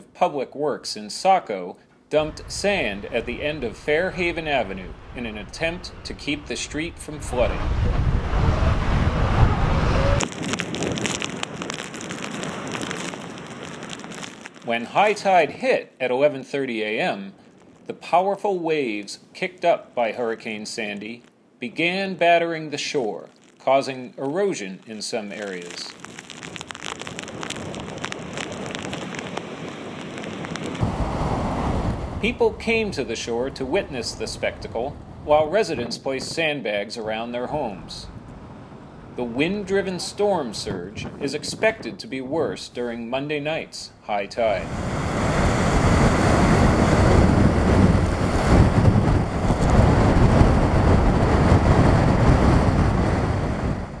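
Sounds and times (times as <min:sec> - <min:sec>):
wind buffeting microphone: 0:02.2 - 0:14.2, 0:26.8 - 0:36.5, 0:37.4 - 0:42.4, 0:44.5 - 0:54.0
waves breaking on a beach: 0:26.8 - 0:34.1, 0:44.6 - 0:54.0.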